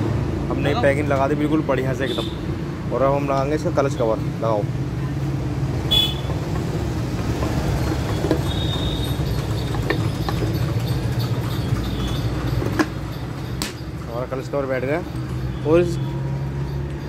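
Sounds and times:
metal cover clicking and knocking: 0:12.4 - 0:14.0.

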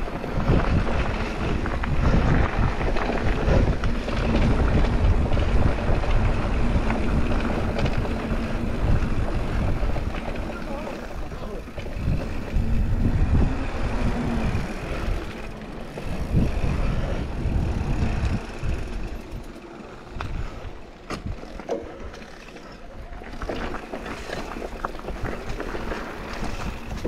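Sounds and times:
tyres rumbling over rocks: 0:00.0 - 0:27.0
wind buffeting microphone: 0:00.0 - 0:27.0
bike knocks and rattles: 0:00.2 - 0:13.3, 0:20.2 - 0:27.0.

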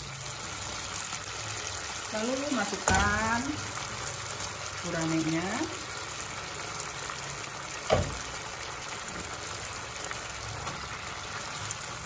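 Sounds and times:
sauce simmering in a wok: 0:00.0 - 0:12.0
loud thump: 0:07.9 - 0:08.2.

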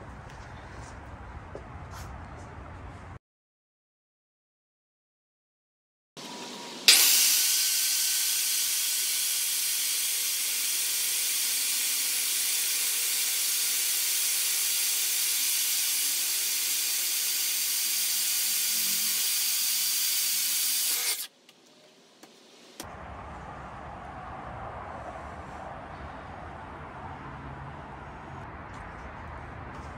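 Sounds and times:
miter saw cutting wood: 0:06.2 - 0:21.4.

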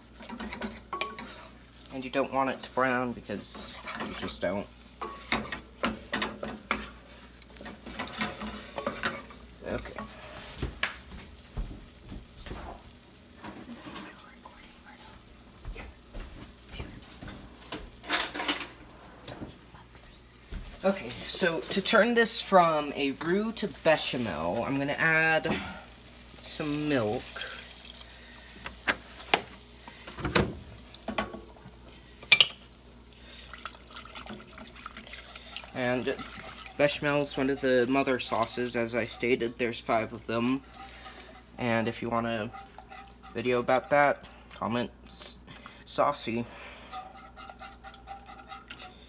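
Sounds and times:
light sizzle: 0:00.0 - 0:49.0
utensils knocking against pan: 0:00.2 - 0:01.3
wooden spatula scraping saucepan: 0:00.2 - 0:10.7, 0:34.4 - 0:49.0.

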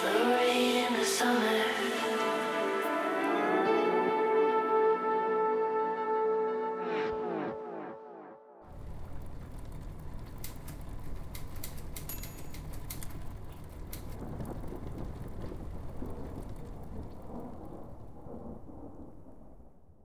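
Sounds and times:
steady rain falling: 0:00.0 - 0:03.6, 0:08.7 - 0:19.7
sharp crackling drops: 0:08.7 - 0:19.7
low rumble of thunder: 0:13.2 - 0:20.0.

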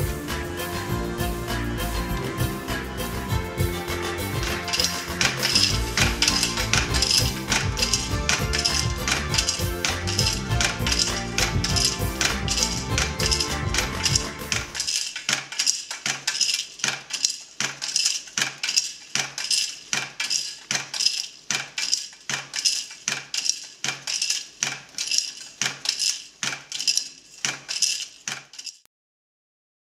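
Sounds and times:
background music: 0:00.0 - 0:14.9
hand loom clacking and thudding: 0:02.0 - 0:28.9.

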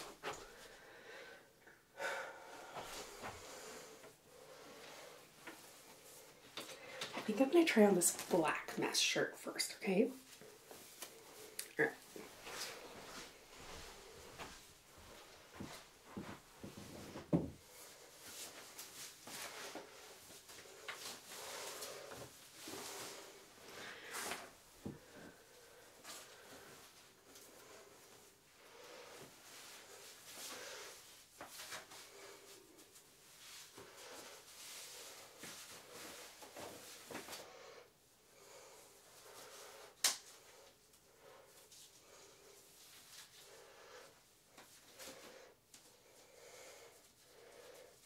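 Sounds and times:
clothes rustling: 0:10.2 - 0:37.7.

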